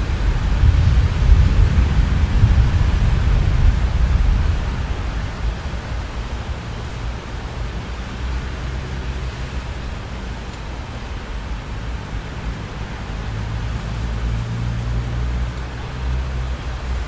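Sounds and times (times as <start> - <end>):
thunder rumbling: 0.0 - 7.4
steady rain: 0.0 - 17.0.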